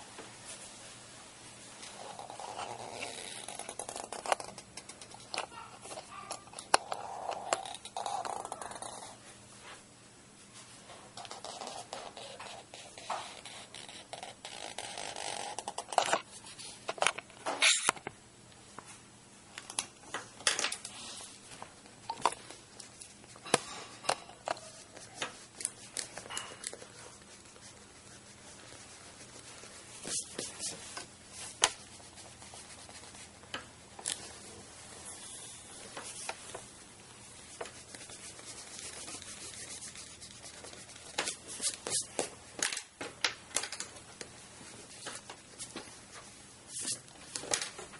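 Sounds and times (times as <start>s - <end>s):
pen scratching on paper: 2.0s - 9.2s, 11.2s - 16.2s, 23.0s - 33.4s, 37.4s - 42.0s
hand brushing over paper: 24.6s - 33.4s, 34.2s - 42.0s.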